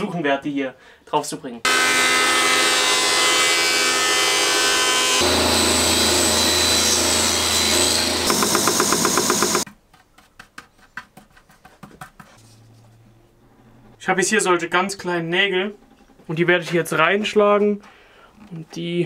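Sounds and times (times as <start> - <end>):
jointer-planer running: 1.7 - 9.6.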